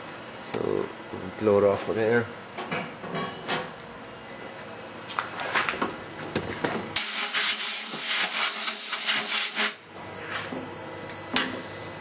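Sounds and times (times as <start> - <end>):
compressed air hiss: 7.0 - 9.8.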